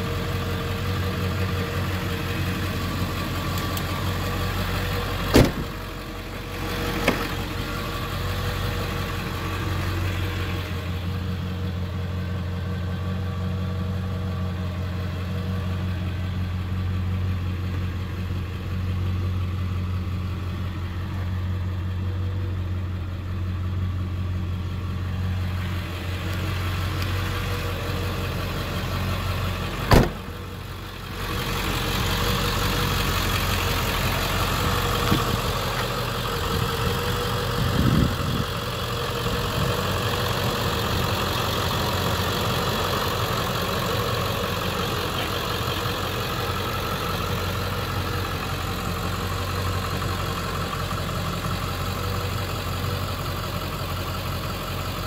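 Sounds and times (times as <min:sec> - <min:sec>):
diesel engine idling: 0:00.0 - 0:55.0
sharp bang: 0:05.3 - 0:05.7, 0:29.9 - 0:30.3.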